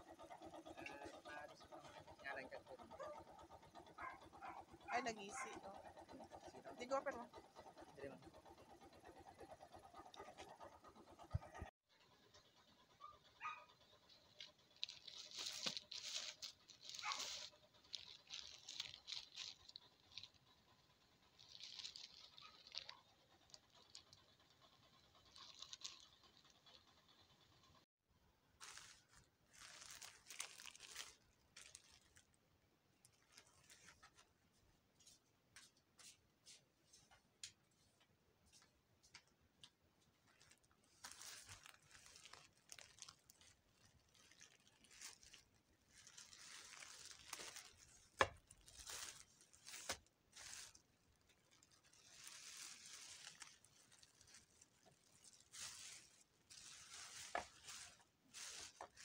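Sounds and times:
plastic bag crinkling: 0:13.9 - 0:27.0, 0:28.6 - 0:32.4, 0:33.0 - 0:34.3, 0:40.1 - 0:59.0
plastic pouch tearing: 0:14.3 - 0:24.2, 0:25.2 - 0:26.8, 0:28.6 - 0:32.3, 0:40.3 - 0:59.0.

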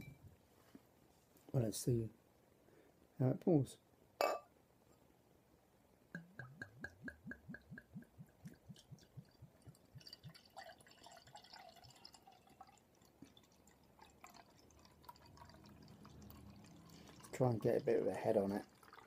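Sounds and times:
beer fizzing in a glass: 0:08.5 - 0:19.0.

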